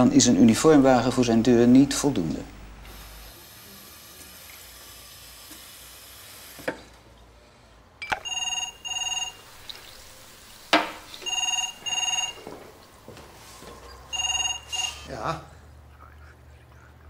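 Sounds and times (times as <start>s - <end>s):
telephone ringing: 8.0s - 9.6s, 11.1s - 12.8s, 14.1s - 15.2s.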